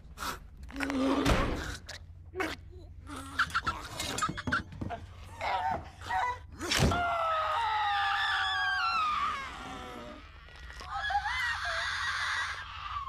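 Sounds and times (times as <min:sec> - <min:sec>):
woman screaming: 0:06.9 - 0:09.8.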